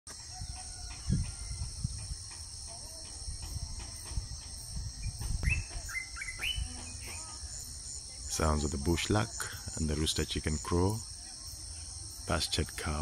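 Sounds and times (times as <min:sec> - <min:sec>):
crickets and insects chirping: 0:00.1 - 0:13.0
faint bird chirps: 0:05.0 - 0:08.4.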